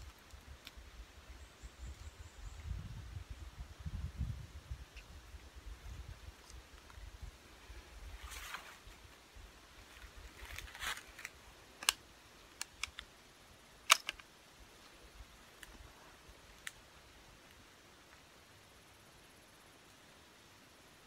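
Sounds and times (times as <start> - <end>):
soft rustling: 5.8 - 11.9
sharp handling clicks: 11.2 - 13.1, 13.8 - 14.3.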